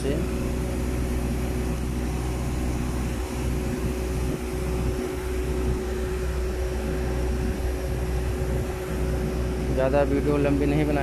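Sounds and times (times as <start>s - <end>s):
machinery humming: 0.0s - 11.0s.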